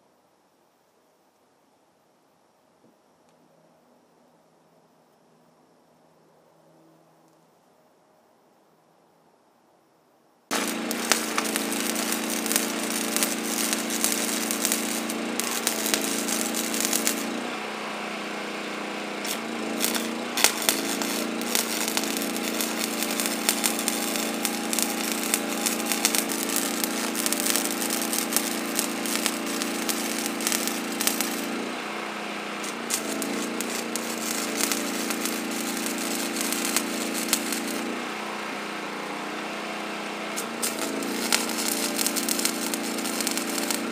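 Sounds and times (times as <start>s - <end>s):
welder arc crackling: 10.5s - 39.4s, 40.0s - 43.9s
low welder hum: 10.5s - 43.9s.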